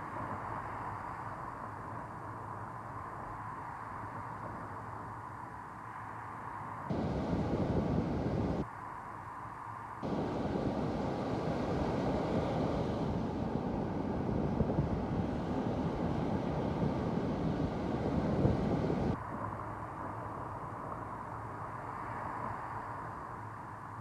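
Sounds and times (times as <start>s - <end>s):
strong wind: 5.8s - 9.0s, 9.9s - 24.0s
surf breaking on beach: 10.0s - 19.1s.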